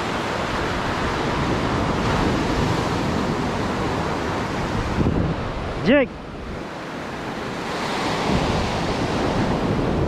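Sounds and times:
ocean surf breaking on sand: 0:00.0 - 0:10.0
wind on microphone: 0:00.0 - 0:10.0.

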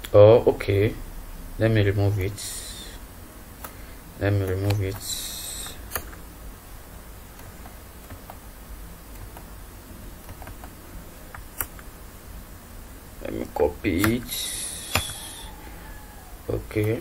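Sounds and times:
low steady hum: 0:00.0 - 0:17.0
computer mouse clicks: 0:14.9 - 0:15.3.

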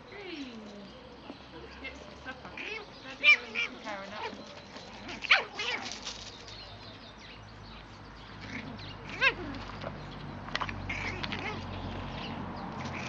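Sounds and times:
puppies yelping: 0:02.4 - 0:06.3, 0:08.4 - 0:10.0, 0:10.6 - 0:13.0.

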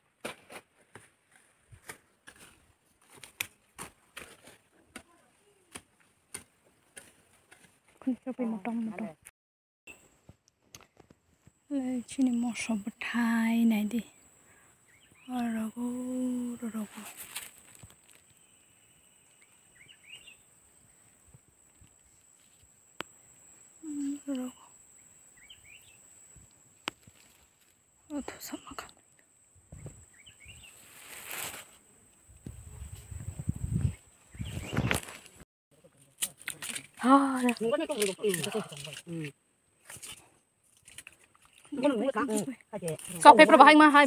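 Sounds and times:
leafy plants rustling: 0:15.4 - 0:18.6, 0:26.8 - 0:27.8, 0:29.9 - 0:39.2
bird chirping: 0:18.3 - 0:21.1, 0:24.9 - 0:26.4, 0:29.7 - 0:30.9, 0:33.7 - 0:35.0.

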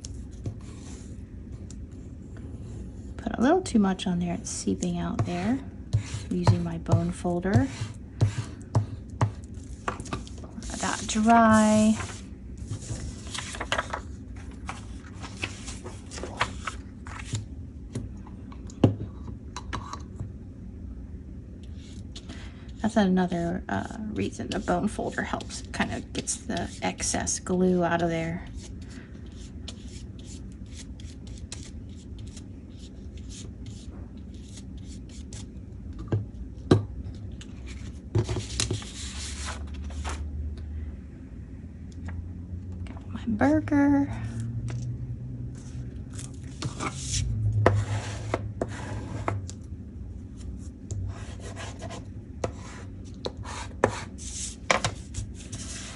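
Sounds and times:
paper rustling: 0:09.7 - 0:17.4.

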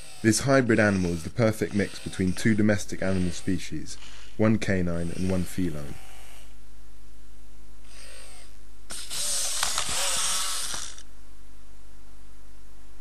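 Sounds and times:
robot servo motors whirring: 0:00.0 - 0:04.3, 0:05.0 - 0:06.5, 0:07.9 - 0:11.1.

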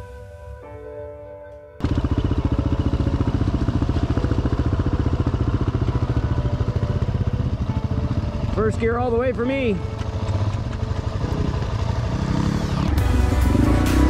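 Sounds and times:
motorcycle engine running: 0:01.8 - 0:14.0
short bit of music: 0:12.6 - 0:14.0.

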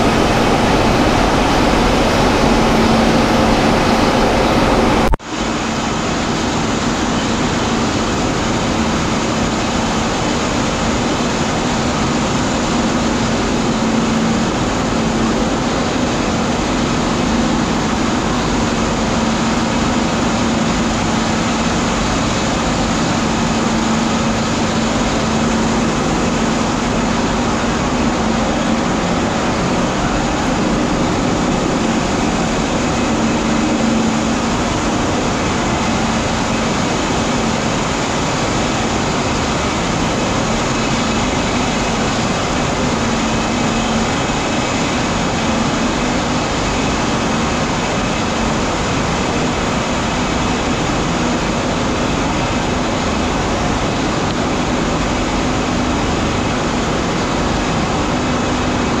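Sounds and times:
low hum: 0:00.0 - 0:05.2, 0:10.8 - 0:58.0
machinery mechanical din: 0:00.0 - 0:06.8.

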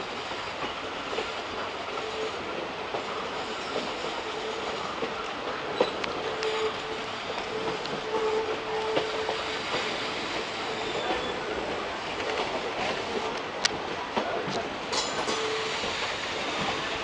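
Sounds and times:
train wheels rushing on rail: 0:00.0 - 0:17.0
wheels squealing: 0:03.4 - 0:11.9.

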